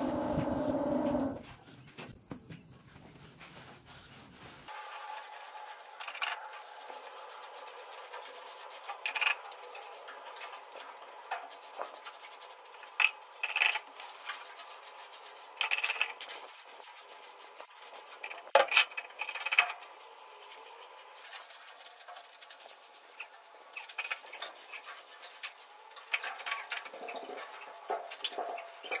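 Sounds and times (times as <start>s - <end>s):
paint roller rubbing on concrete: 3.1s - 10.1s, 13.8s - 18.6s, 20.4s - 25.8s.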